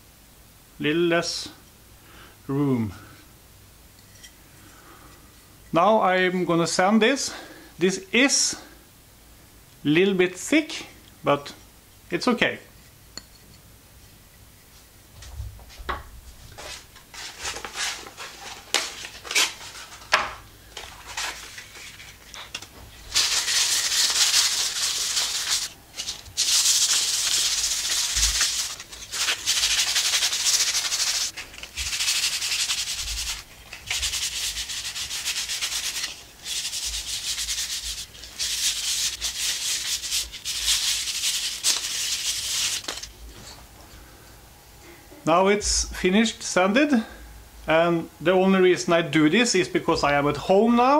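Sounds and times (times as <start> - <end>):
sandpaper rubbing on wood: 23.1 - 43.0.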